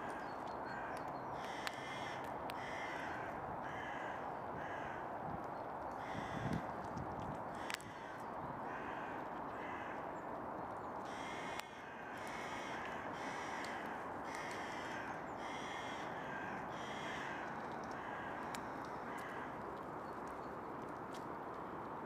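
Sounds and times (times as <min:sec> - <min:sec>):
crows cawing: 0:00.0 - 0:05.2, 0:06.0 - 0:06.8, 0:07.5 - 0:10.2, 0:11.0 - 0:19.7.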